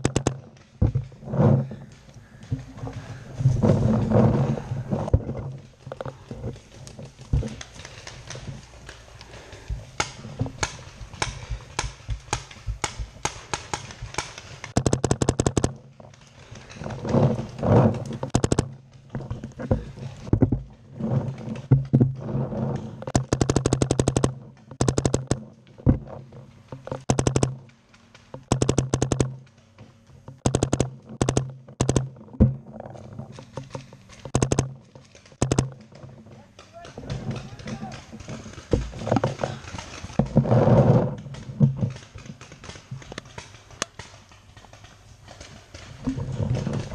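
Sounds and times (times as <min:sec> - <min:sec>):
paintball markers firing: 0:00.0 - 0:00.8, 0:07.5 - 0:15.8, 0:18.3 - 0:18.8, 0:23.1 - 0:25.5, 0:27.0 - 0:29.7, 0:30.4 - 0:32.2, 0:33.8 - 0:38.8.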